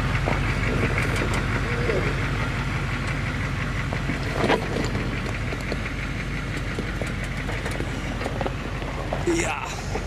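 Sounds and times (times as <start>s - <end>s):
diesel engine running slowly: 0.0s - 10.0s
stones and suspension knocking: 3.9s - 10.0s.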